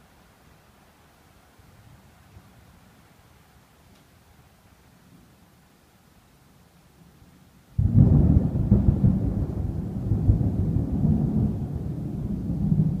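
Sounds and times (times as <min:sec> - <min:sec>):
thunder crack and rumble: 0:07.8 - 0:13.0.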